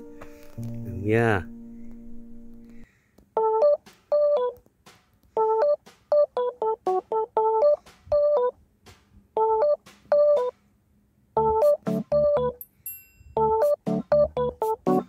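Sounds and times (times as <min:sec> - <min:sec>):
staccato keyboard melody: 0:03.4 - 0:10.6, 0:11.4 - 0:12.6, 0:13.4 - 0:15.0.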